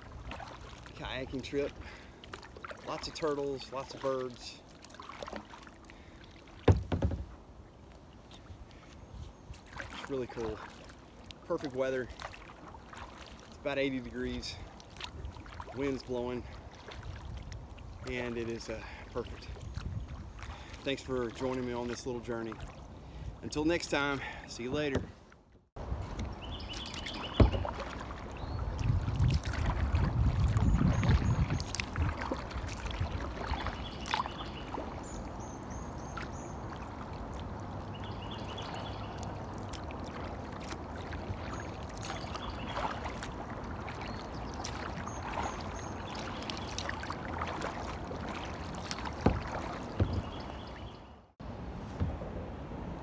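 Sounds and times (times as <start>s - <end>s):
water lapping against hull: 0.0s - 53.0s
sharp knocks: 6.6s - 7.3s
wind on microphone: 19.6s - 20.6s, 25.8s - 34.0s
birds chirping: 26.1s - 28.9s, 33.4s - 40.1s, 40.9s - 51.3s.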